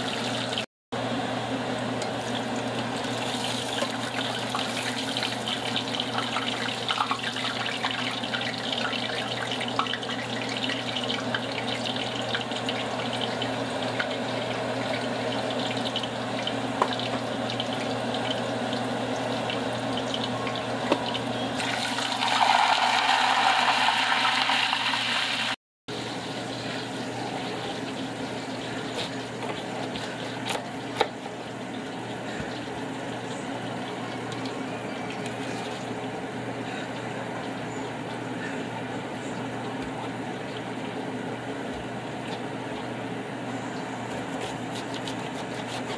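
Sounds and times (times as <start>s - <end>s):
hot oil sizzling: 0.0s - 0.6s, 1.8s - 34.0s.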